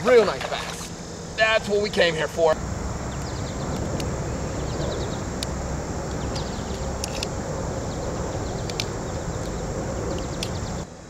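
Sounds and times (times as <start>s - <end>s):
wind on microphone: 2.6s - 10.8s
sharp clicks: 5.4s - 7.4s, 8.6s - 10.6s.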